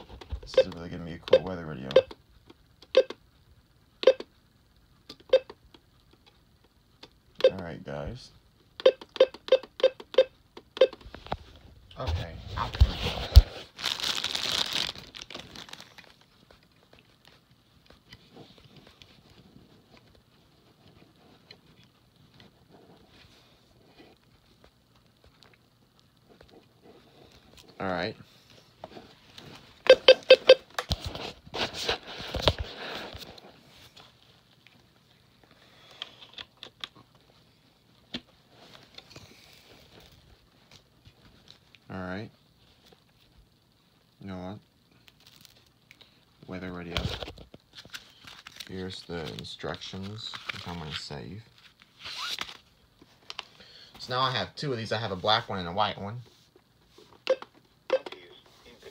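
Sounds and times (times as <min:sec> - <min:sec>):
plastic crinkling: 0:12.6 - 0:17.4, 0:45.0 - 0:45.8, 0:47.1 - 0:53.4.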